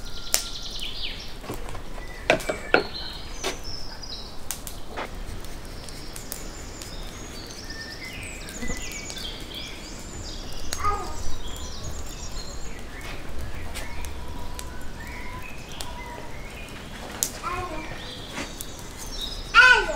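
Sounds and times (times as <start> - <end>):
small birds chirping: 0.0 - 19.9
low outdoor rumble: 8.5 - 19.9.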